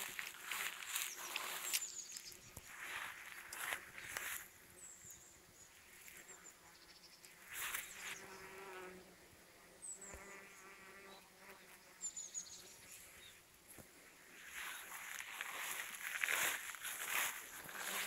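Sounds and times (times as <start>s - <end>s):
bees buzzing in flight: 7.5s - 9.2s, 14.4s - 18.0s.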